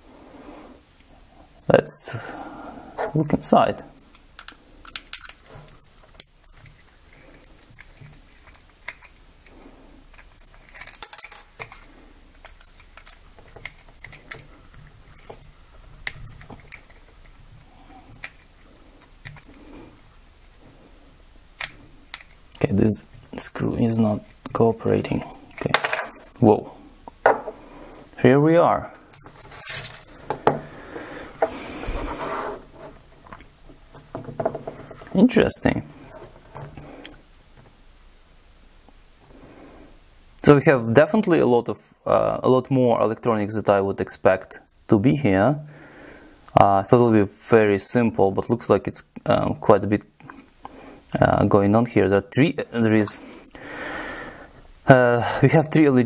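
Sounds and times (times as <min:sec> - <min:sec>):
screwdriver clicking and scraping: 0:04.1 - 0:17.4
plastic housing handling noise: 0:10.1 - 0:17.4
rubbing scrape: 0:30.8 - 0:33.2.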